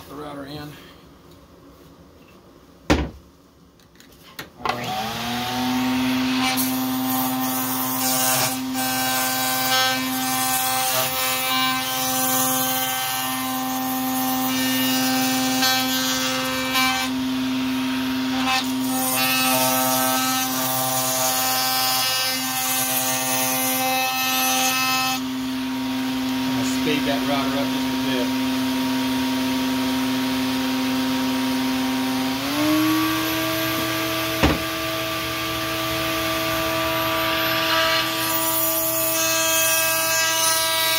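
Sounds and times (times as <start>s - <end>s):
router whining: 4.6s - 8.7s, 25.8s - 38.8s
router cutting wood: 4.6s - 40.9s.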